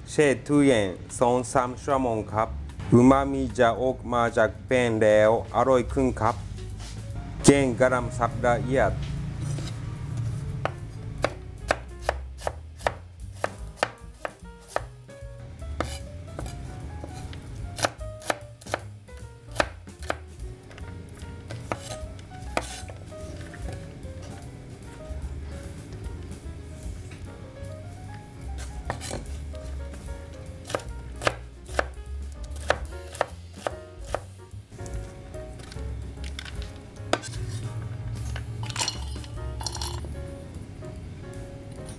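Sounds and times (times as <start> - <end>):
knife slicing cabbage on board: 10.6 - 14.9, 15.8 - 18.9, 19.5 - 20.3, 21.4 - 23.7, 28.6 - 29.8, 30.6 - 35.8, 36.4 - 38.4.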